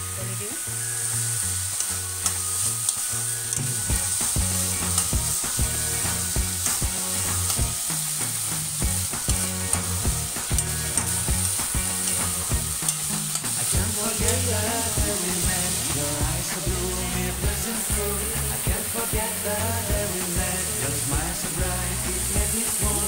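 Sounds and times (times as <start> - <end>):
beans sizzling in oil: 0.0 - 23.0
metal spoon scraping pan: 12.0 - 13.7
spoon clicking against pan: 12.8 - 13.6.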